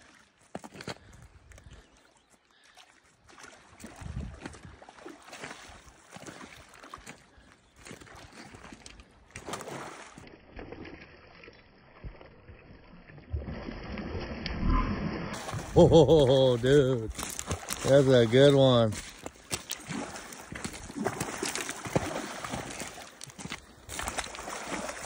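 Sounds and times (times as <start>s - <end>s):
fish splashing in water: 9.4s - 25.0s.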